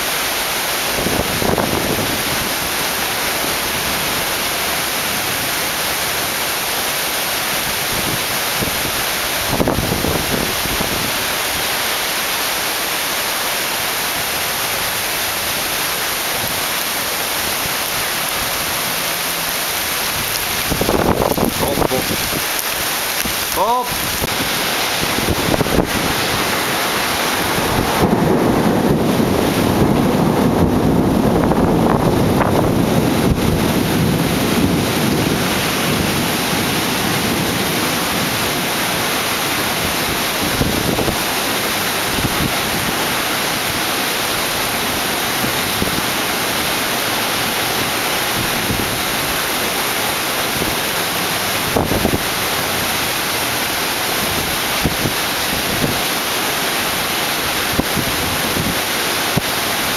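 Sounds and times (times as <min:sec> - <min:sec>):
heavy rain: 0:00.0 - 0:59.9
wind: 0:00.0 - 0:59.9
low thunder rumble: 0:24.0 - 0:41.3.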